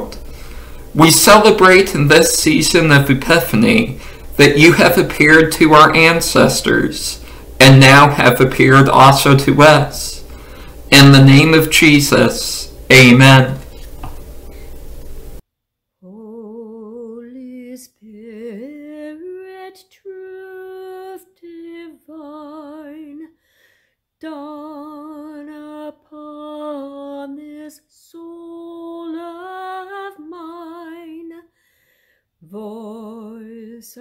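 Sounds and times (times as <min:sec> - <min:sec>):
woman singing a hymn: 0:16.0 - 0:23.3, 0:24.2 - 0:31.4, 0:32.4 - 0:34.0.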